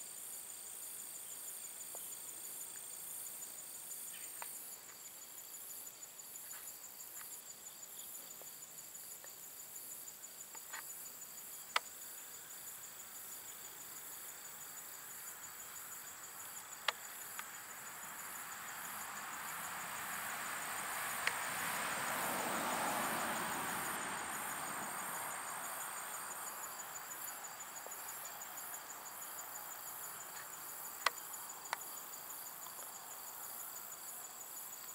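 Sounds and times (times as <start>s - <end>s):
crickets trilling: 0.0s - 34.9s.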